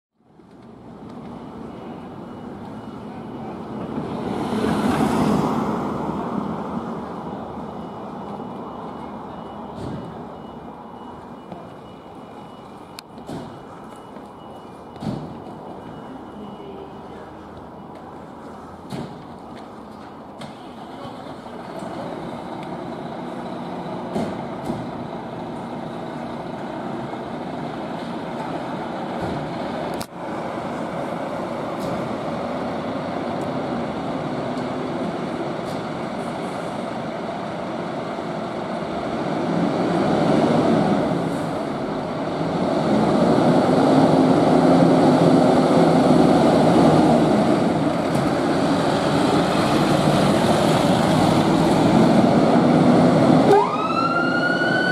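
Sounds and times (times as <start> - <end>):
diesel engines running: 0.3 - 54.9
fire engine revving: 20.7 - 54.9.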